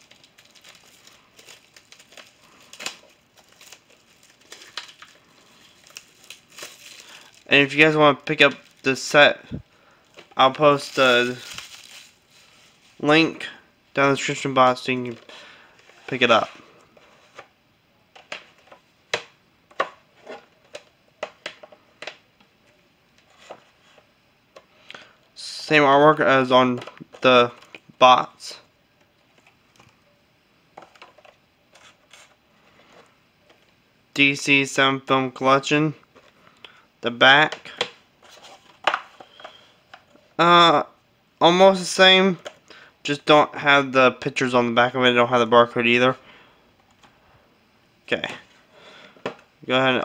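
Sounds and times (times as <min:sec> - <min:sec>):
plastic shrink wrap crinkling: 0:00.0 - 0:13.1.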